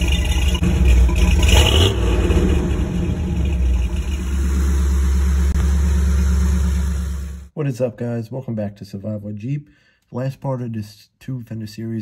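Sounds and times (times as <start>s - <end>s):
engine exhaust rumble: 0.0s - 7.5s.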